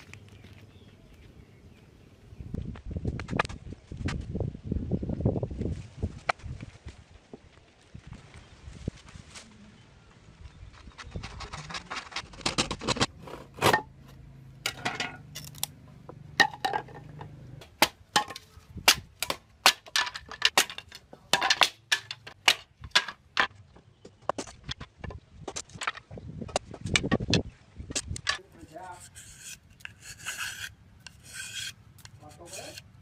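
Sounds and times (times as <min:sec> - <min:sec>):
knife splitting bamboo: 0:14.7 - 0:15.8, 0:16.4 - 0:23.2, 0:28.2 - 0:33.0.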